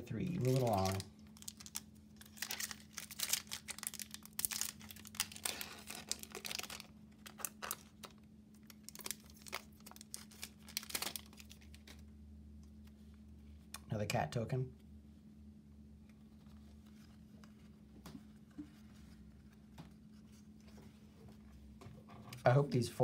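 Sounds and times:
foil wrapper crinkling and tearing: 0:00.2 - 0:12.0.

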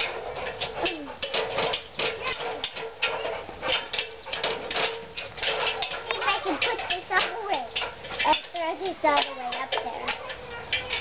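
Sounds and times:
dog claws knocking on ladder rungs: 0:00.0 - 0:11.0.

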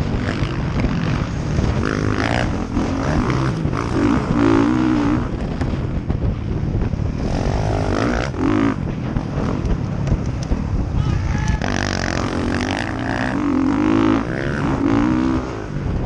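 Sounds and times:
dirt bike engine revving: 0:00.0 - 0:05.9, 0:07.1 - 0:09.6, 0:11.2 - 0:16.0.

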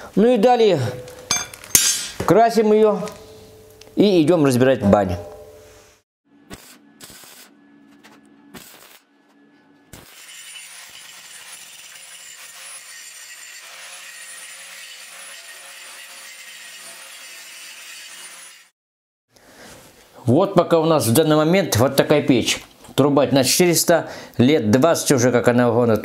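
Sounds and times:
electric grinder on sheet steel: 0:10.0 - 0:18.7.

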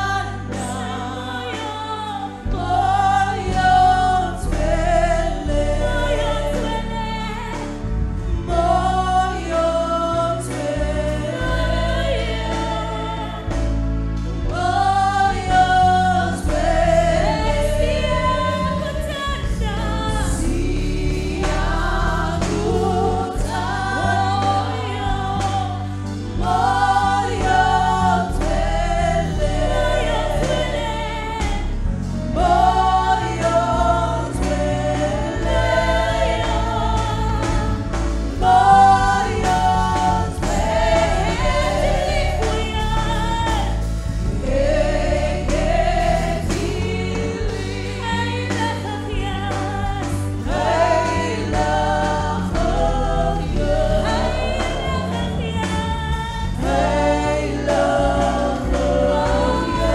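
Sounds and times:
keyboard: 0:00.0 - 0:59.9
women singing gospel: 0:00.0 - 0:59.9
drums: 0:07.4 - 0:59.9.

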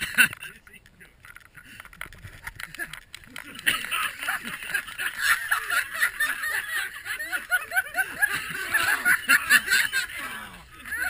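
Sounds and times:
people laughing and snickering: 0:00.0 - 0:00.9, 0:01.5 - 0:11.0.

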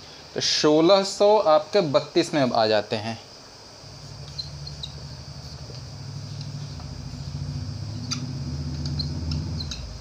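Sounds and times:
low motor hum: 0:03.8 - 0:10.0
marker squeaking on whiteboard: 0:04.0 - 0:10.0.

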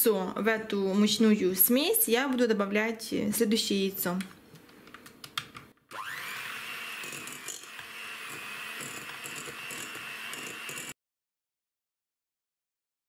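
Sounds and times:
hand mixer motor whine: 0:05.9 - 0:11.0.

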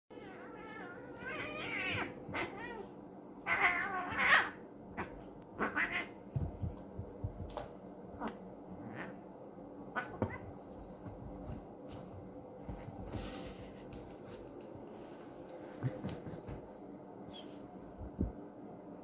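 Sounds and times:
cats yowling: 0:00.1 - 0:06.2.

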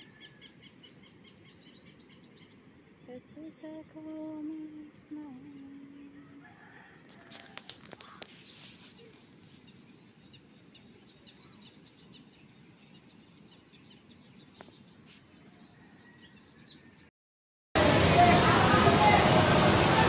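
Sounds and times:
small birds chirping: 0:00.0 - 0:17.1
river rushing: 0:17.8 - 0:20.0.

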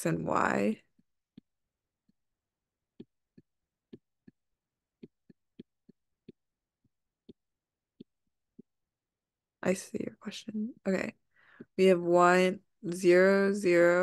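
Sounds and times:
stylus tapping on screen: 0:00.5 - 0:09.1, 0:10.9 - 0:12.8.

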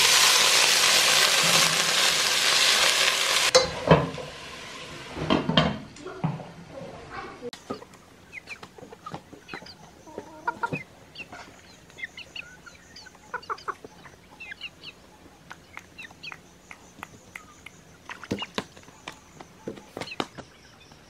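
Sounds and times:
chickens clucking: 0:06.8 - 0:21.0.

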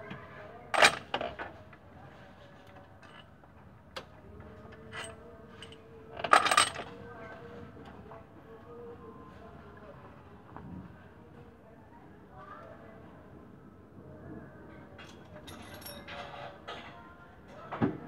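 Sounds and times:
metal tools clinking on engine: 0:00.8 - 0:01.4, 0:04.7 - 0:06.9, 0:15.1 - 0:16.9.

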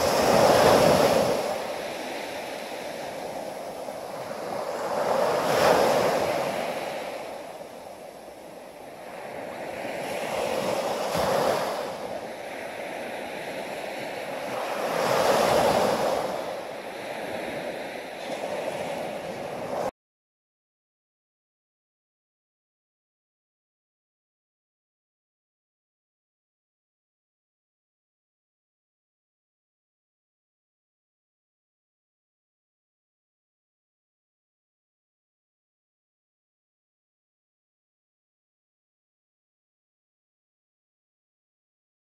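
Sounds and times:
ocean waves breaking on beach: 0:00.0 - 0:19.9.

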